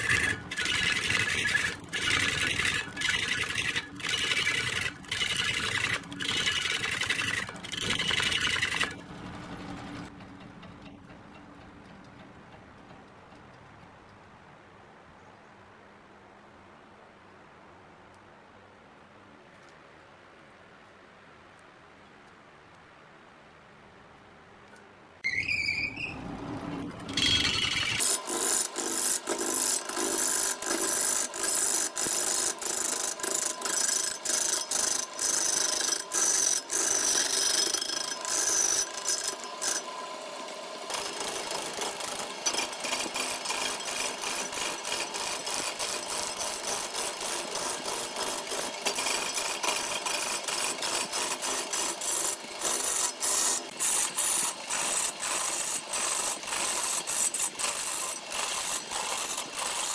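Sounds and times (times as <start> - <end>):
wood lathe tool scraping wood: 0.0 - 10.1, 25.2 - 59.9
tool clicking on uneven wood: 0.0 - 13.6, 26.6 - 59.9.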